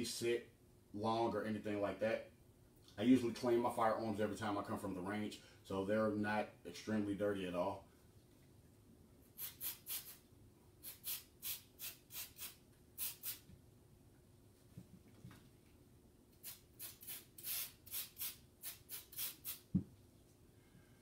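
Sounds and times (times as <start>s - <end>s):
spray bottle squirting: 9.4s - 10.2s, 10.8s - 13.5s, 16.4s - 19.7s.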